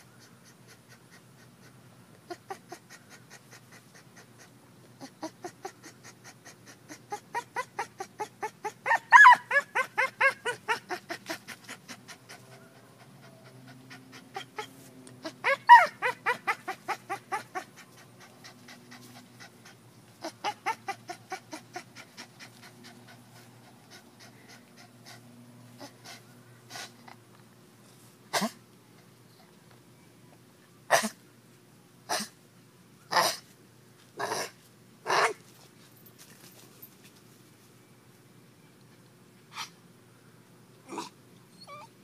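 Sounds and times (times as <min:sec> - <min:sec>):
puppy panting: 0:00.0 - 0:27.2.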